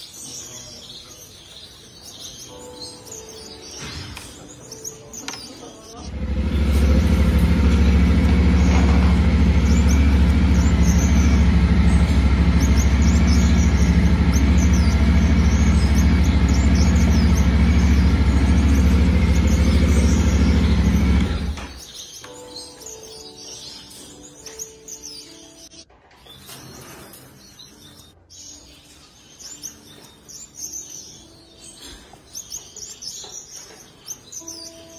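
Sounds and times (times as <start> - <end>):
motorcycle engine idling: 6.0 - 21.8.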